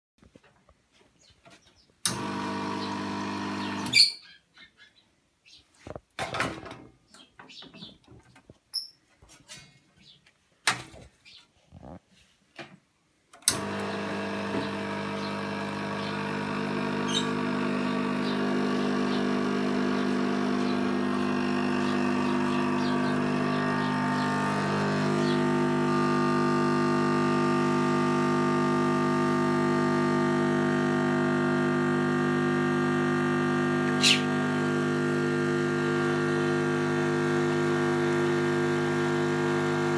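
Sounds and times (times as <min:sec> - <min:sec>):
espresso pump humming: 0:02.1 - 0:04.1, 0:13.5 - 0:39.9.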